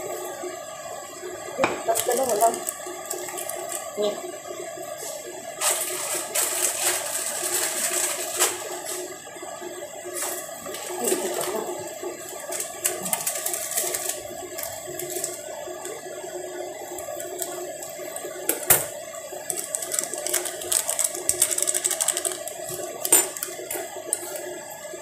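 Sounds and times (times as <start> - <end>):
plastic sachets crinkling: 1.9 - 4.0, 5.6 - 9.0, 10.7 - 15.9, 16.9 - 18.4, 19.4 - 24.5.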